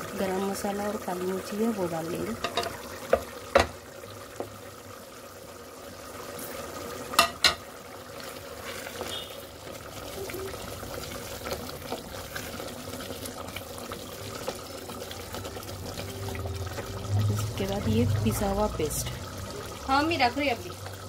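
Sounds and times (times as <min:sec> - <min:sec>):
spoon stirring bubbling gravy: 0:06.0 - 0:19.8.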